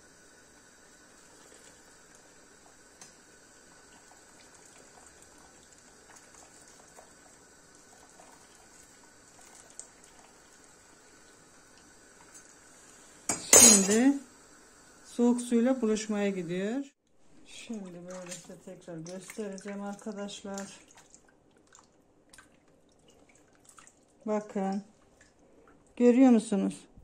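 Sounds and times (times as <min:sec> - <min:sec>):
water dripping into pot: 0:01.2 - 0:12.5, 0:17.7 - 0:26.0.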